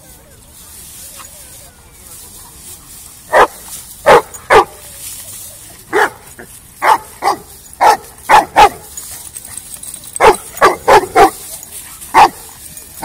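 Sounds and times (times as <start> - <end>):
dog barking: 3.3 - 4.8, 5.9 - 6.2, 6.8 - 8.8, 10.2 - 11.4, 12.1 - 12.4.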